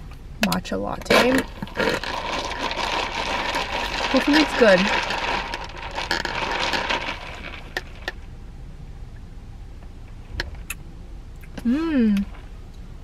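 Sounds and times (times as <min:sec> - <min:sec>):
ice clinking in plastic cup: 0:01.3 - 0:08.2.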